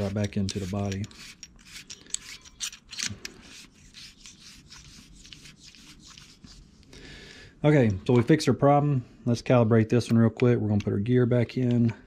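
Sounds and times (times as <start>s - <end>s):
tube scraping in actuator body: 0.0s - 6.6s.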